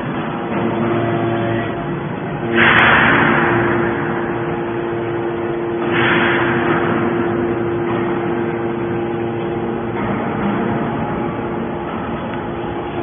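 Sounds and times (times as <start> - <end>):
hydraulic pump humming: 0.0 - 13.0.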